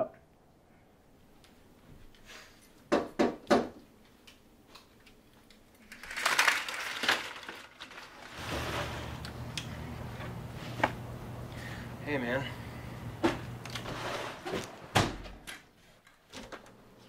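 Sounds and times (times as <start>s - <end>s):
knocks on a door: 2.9s - 3.8s
low steady hum: 8.3s - 14.9s.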